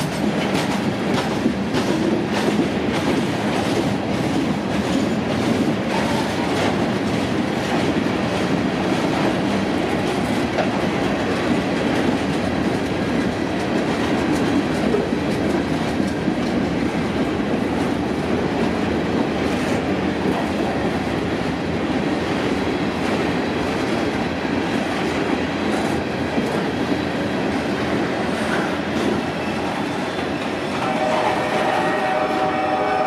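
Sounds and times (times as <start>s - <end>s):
wheels clicking over rail joints: 0.0s - 20.8s
steel wheels rumbling on rails: 0.0s - 33.0s.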